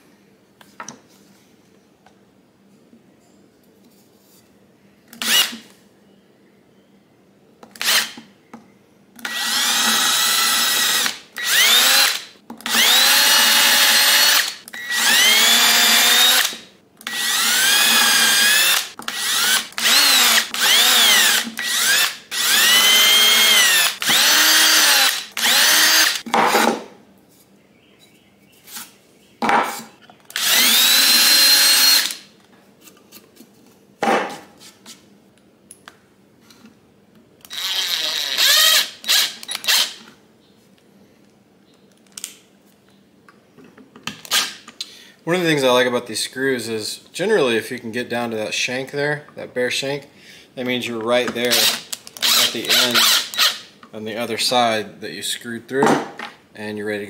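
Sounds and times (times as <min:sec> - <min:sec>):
cordless drill whining into wood: 0:05.2 - 0:05.6, 0:07.8 - 0:08.2, 0:09.2 - 0:26.2, 0:30.3 - 0:32.2, 0:37.4 - 0:40.0, 0:51.5 - 0:53.7.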